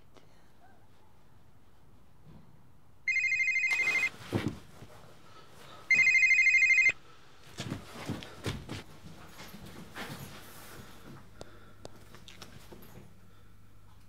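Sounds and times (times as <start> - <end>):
telephone ringing electronic warble: 3.1 - 4.1, 5.9 - 7.0.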